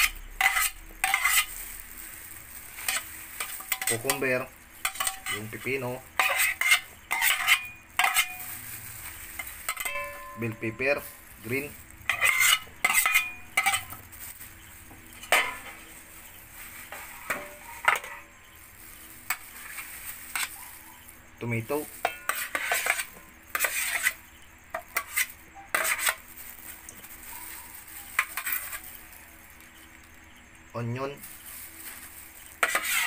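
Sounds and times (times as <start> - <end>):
metal spoon scraping steel bowls: 0.0 - 1.6, 2.4 - 14.1, 16.8 - 18.4, 19.0 - 21.1, 21.8 - 26.3, 27.2 - 29.2, 32.4 - 33.0.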